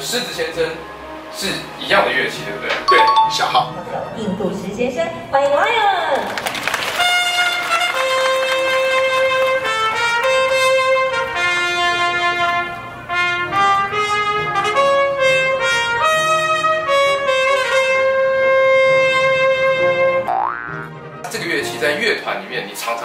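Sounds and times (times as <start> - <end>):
trumpet melody: 2.9 - 3.6, 7.0 - 21.8.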